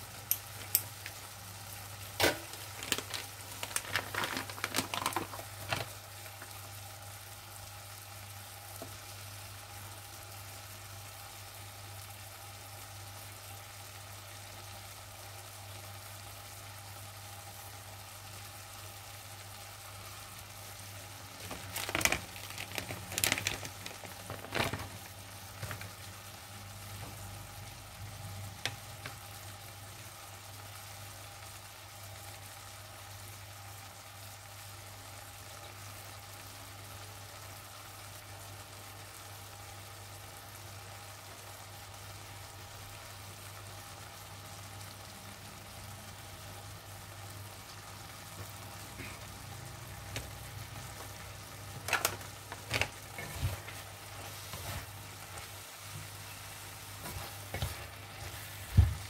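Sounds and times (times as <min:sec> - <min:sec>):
vegetables sizzling in oil: 0:00.0 - 0:59.0
knocks and scrapes in wok: 0:57.0 - 0:59.0.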